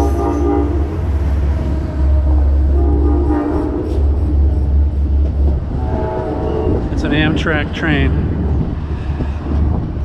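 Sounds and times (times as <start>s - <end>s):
train horn chord: 0.0s - 1.0s, 2.1s - 4.3s, 5.7s - 6.8s
train rumbling: 0.0s - 10.0s.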